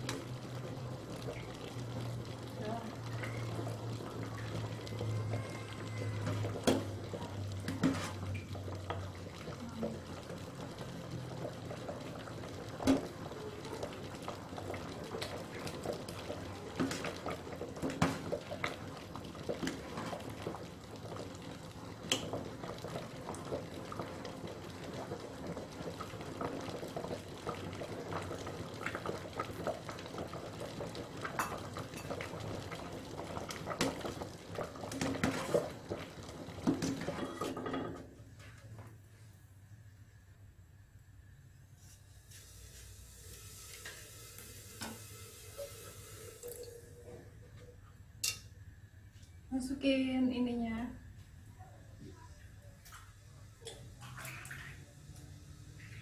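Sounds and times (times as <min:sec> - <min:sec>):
thick soup bubbling: 0:00.0 - 0:39.2.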